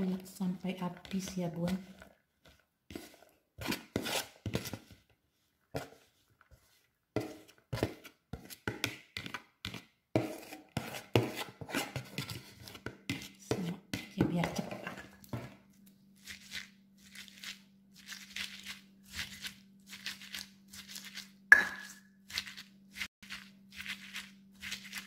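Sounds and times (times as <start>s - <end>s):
scraping bowl into stone mortar: 1.0s - 5.0s, 5.7s - 15.4s.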